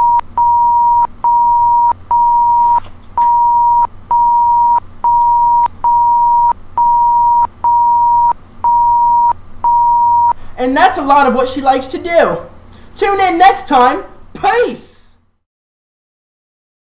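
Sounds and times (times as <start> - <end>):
censor bleep tone: 0.0 - 10.4
speech: 10.6 - 15.2.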